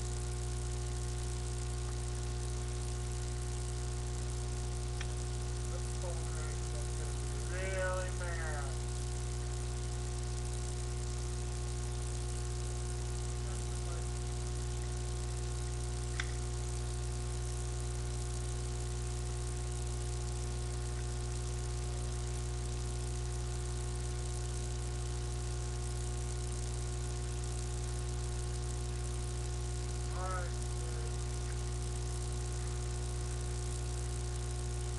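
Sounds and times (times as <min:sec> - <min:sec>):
electrical hum with hiss: 0:00.0 - 0:34.9
faint click: 0:05.0 - 0:05.2, 0:16.1 - 0:16.4.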